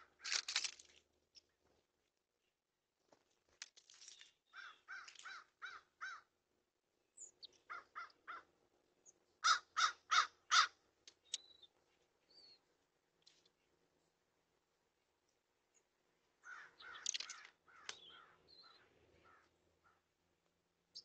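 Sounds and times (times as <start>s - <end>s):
small birds chirping: 3.9s - 6.3s, 7.1s - 8.4s, 9.0s - 14.2s, 15.3s - 20.1s
crows cawing: 4.5s - 6.3s, 7.7s - 8.5s, 9.4s - 10.8s, 16.4s - 18.4s, 19.2s - 20.0s.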